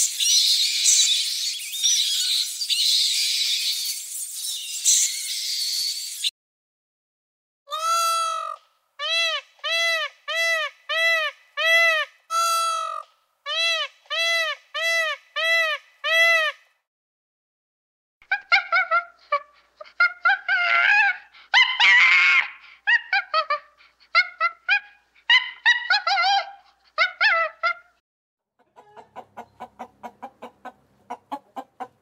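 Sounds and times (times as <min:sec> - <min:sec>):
short chirps and wavering calls: 0:00.0 - 0:06.3.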